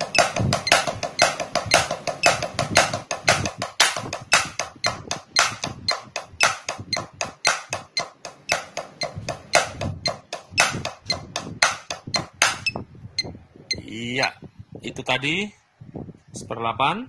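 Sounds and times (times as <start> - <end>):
drumsticks striking practice pad: 0.0 - 12.8
metronome clicking: 0.0 - 13.3.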